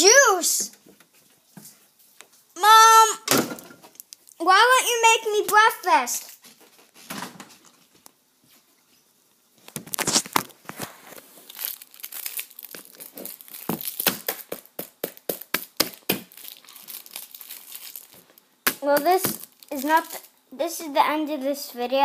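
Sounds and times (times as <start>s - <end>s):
food packaging crinkling and tearing: 3.9s - 4.4s, 9.6s - 20.4s.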